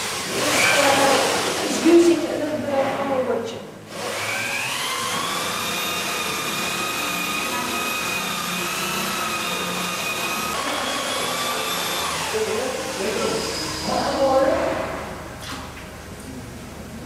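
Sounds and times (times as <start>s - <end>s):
electric drill mixer whining: 0.0s - 2.3s, 3.9s - 15.2s.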